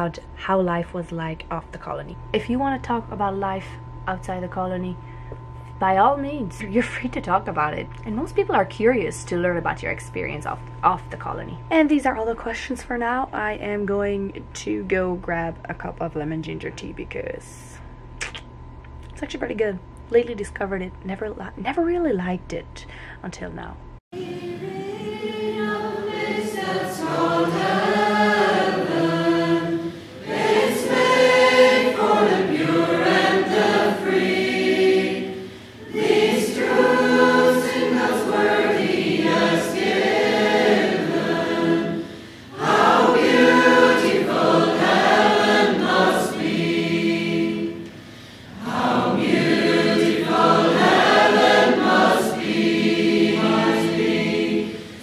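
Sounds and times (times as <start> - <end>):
choir singing slow song: 24.2 - 55.0.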